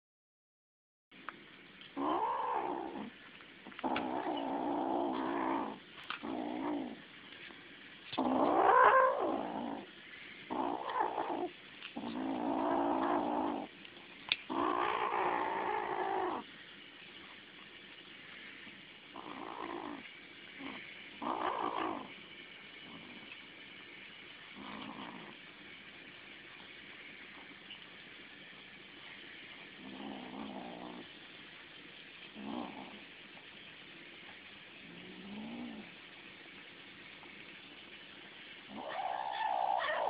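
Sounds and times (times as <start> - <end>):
kitten growling yowls: 2.0 - 3.1, 8.2 - 9.9, 10.5 - 13.7, 14.5 - 16.4, 20.6 - 22.1, 38.7 - 40.0.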